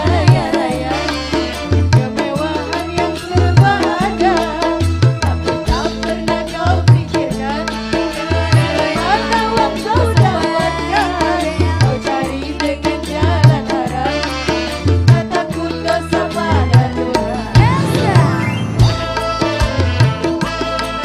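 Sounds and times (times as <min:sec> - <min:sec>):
hand drums: 0:00.0 - 0:07.7, 0:14.8 - 0:21.0
woman singing: 0:00.0 - 0:21.0
bass line: 0:17.2 - 0:20.2.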